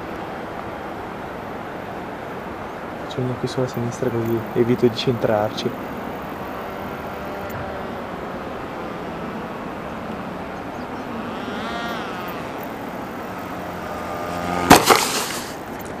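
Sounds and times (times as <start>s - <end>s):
electric motor whine: 5.8s - 14.9s
model plane thumping on grass: 14.1s - 16.0s.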